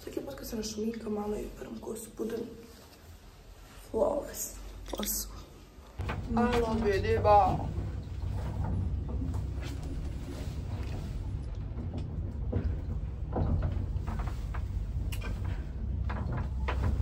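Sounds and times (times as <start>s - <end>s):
lift humming: 6.0s - 17.0s
light clicks and knocks: 6.0s - 17.0s.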